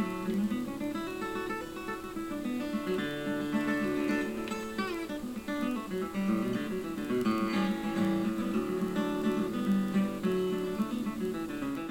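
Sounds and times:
acoustic guitar music: 0:00.0 - 0:11.9.

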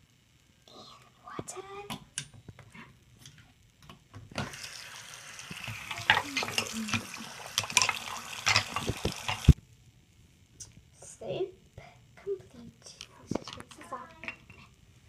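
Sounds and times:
tap water splashing: 0:05.4 - 0:09.6.

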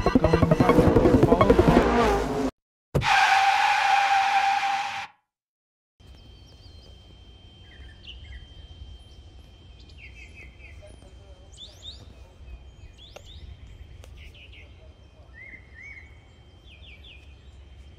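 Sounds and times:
songbirds chirping: 0:06.0 - 0:17.9.

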